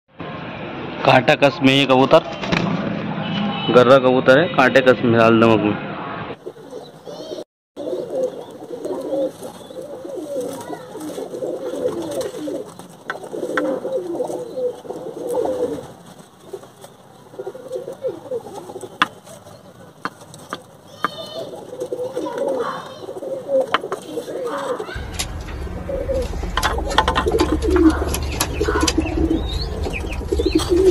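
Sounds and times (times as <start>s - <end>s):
pigeons cooing: 6.4s - 30.9s.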